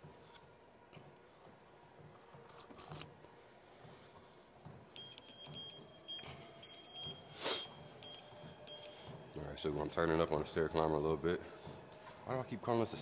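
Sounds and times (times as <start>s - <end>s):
faint motor whir: 0.0s - 13.0s
treadmill console beeping: 3.1s - 13.0s
loud nasal breath: 7.3s - 7.8s.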